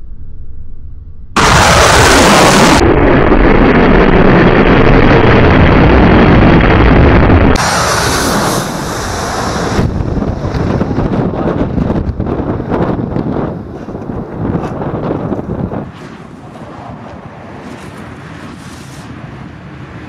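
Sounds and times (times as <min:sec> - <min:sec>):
jet engines roaring overhead: 0:01.4 - 0:20.0
wind buffeting microphone: 0:02.3 - 0:20.0.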